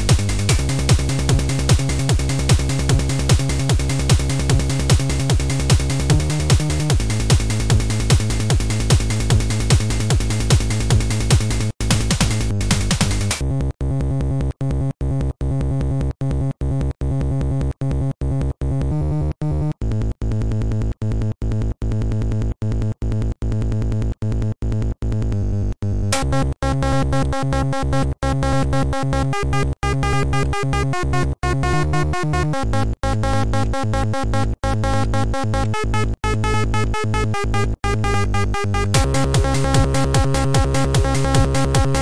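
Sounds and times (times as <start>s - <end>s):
synthesized electronic music: 0.0s - 13.5s, 26.1s - 42.0s.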